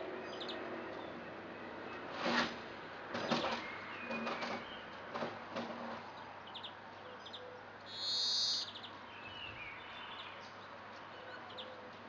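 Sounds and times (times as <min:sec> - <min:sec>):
songbirds chirping: 0:00.0 - 0:02.2, 0:02.8 - 0:12.0
background hiss: 0:07.8 - 0:08.8.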